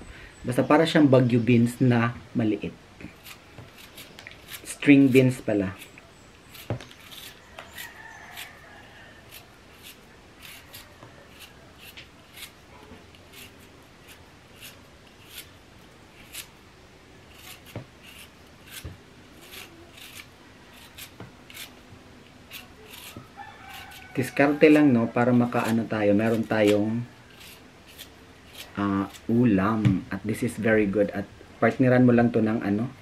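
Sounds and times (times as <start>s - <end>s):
knife scraping skin off taro: 3.0s - 16.6s, 17.3s - 29.4s.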